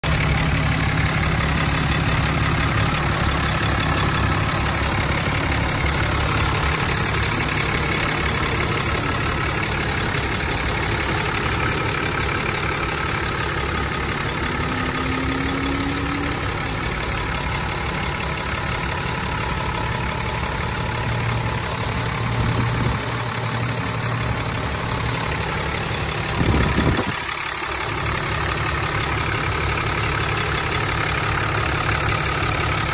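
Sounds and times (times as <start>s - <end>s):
diesel engine idling: 0.0s - 32.9s.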